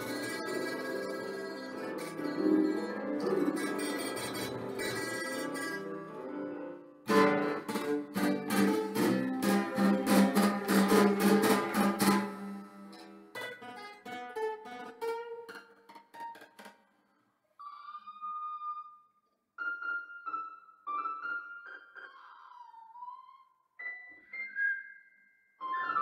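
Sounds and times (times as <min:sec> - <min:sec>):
acoustic guitar strummed chords: 0:00.0 - 0:05.8, 0:07.1 - 0:16.7
held keyboard chord: 0:00.0 - 0:12.5.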